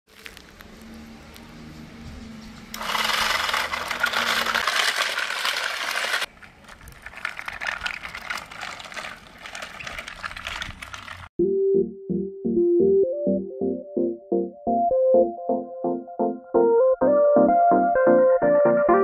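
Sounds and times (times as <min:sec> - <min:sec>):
small motor whirring through gear: 0:02.7 - 0:06.3
plastic toy rattling over paving: 0:02.7 - 0:11.3.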